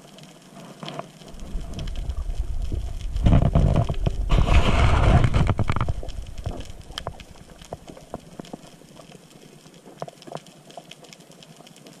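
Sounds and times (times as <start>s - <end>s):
underwater rush of water: 0.0s - 12.0s
underwater sharp clicks: 1.4s - 10.4s.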